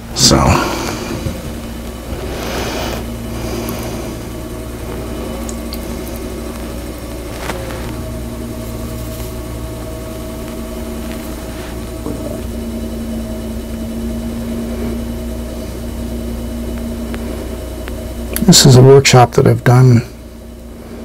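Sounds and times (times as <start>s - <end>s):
potter's wheel motor hum: 0.0s - 21.0s.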